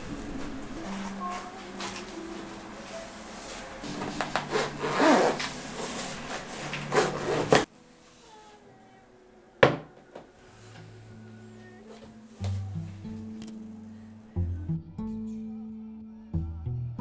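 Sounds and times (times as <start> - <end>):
fabric pouch rustling: 3.4 - 7.7
zipper being pulled: 4.2 - 7.7.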